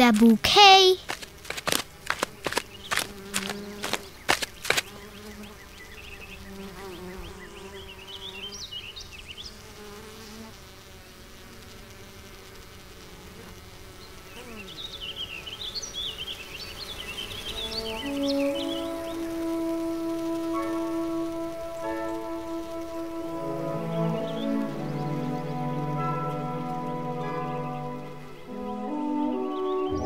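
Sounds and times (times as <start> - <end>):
bees buzzing: 0.0 - 30.0
sharp taps: 1.0 - 4.9.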